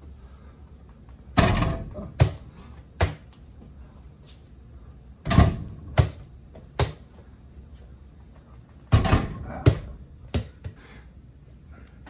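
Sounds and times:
ball bouncing on floor: 0:00.9 - 0:03.4, 0:05.3 - 0:07.2, 0:08.9 - 0:10.8
rattling hit on hoop: 0:01.4 - 0:02.4, 0:05.2 - 0:06.2, 0:08.9 - 0:10.0.

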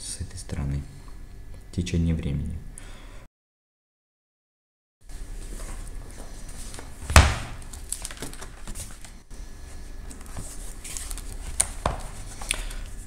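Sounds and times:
paper rustling: 0:06.4 - 0:09.2, 0:10.1 - 0:12.5
page turning: 0:06.6 - 0:09.2, 0:10.1 - 0:12.5.

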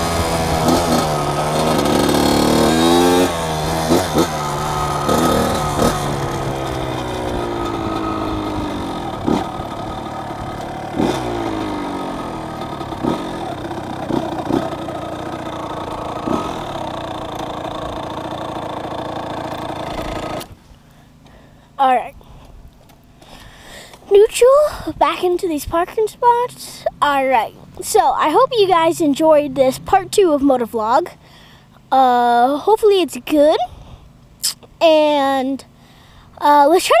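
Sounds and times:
dirt bike engine revving: 0:00.0 - 0:20.6.

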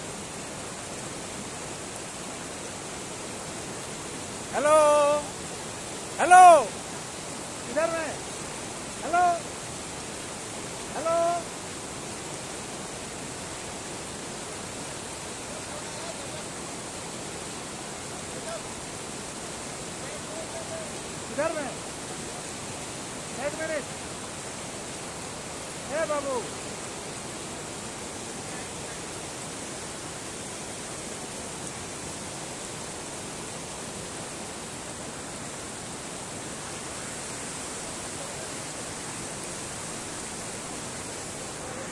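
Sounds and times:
river rushing over stones: 0:00.0 - 0:41.9.

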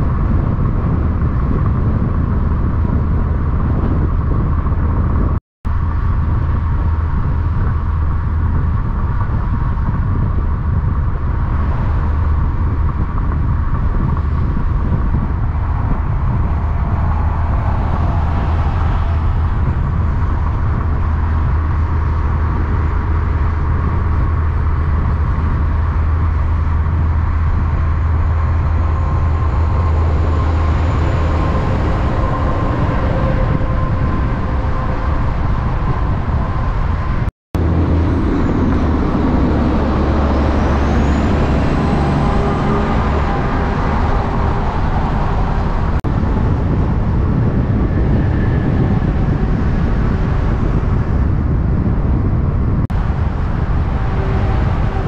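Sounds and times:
diesel truck engine droning: 0:00.0 - 0:55.0.

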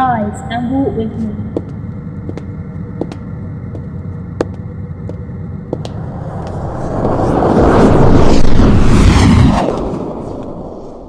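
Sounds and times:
low rumbling ambience: 0:00.0 - 0:11.0
rushing whoosh effect: 0:05.9 - 0:11.0.

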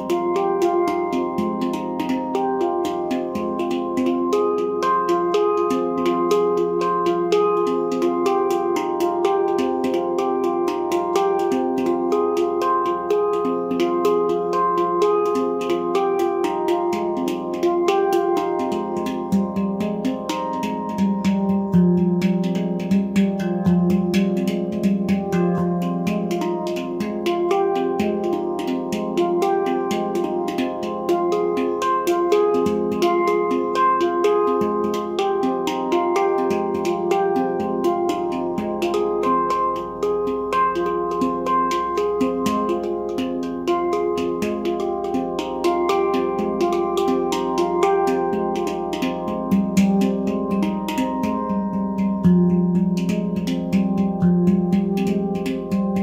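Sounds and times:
handpan played by hand: 0:00.0 - 0:56.0.

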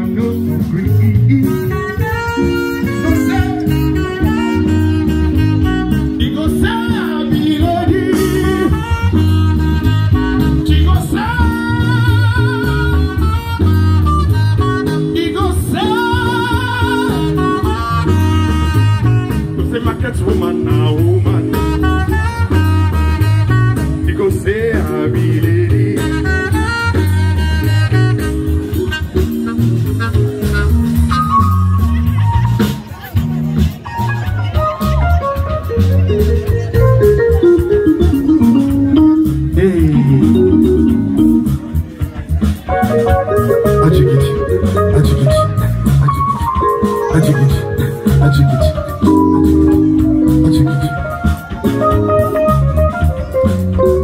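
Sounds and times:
repeating bass line: 0:00.0 - 0:54.0
song with singing voice: 0:05.8 - 0:09.2, 0:10.1 - 0:13.3, 0:15.0 - 0:17.7, 0:24.0 - 0:26.6, 0:38.2 - 0:42.0.

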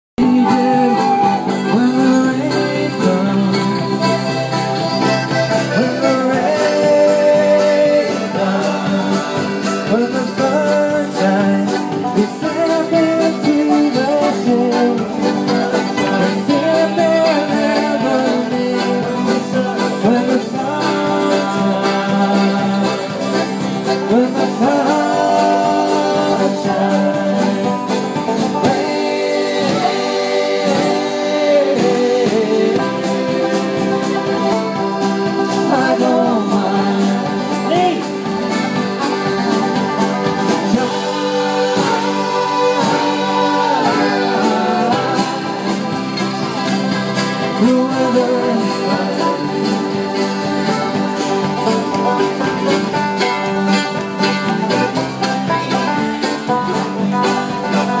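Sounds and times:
acoustic guitar: 0:00.2 - 0:58.0
men singing: 0:00.2 - 0:58.0.

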